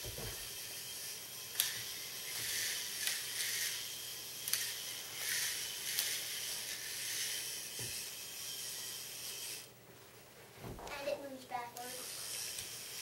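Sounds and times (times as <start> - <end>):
small electric motor whirring: 0.0 - 9.7, 11.6 - 13.0
plastic gears clicking: 1.5 - 8.0.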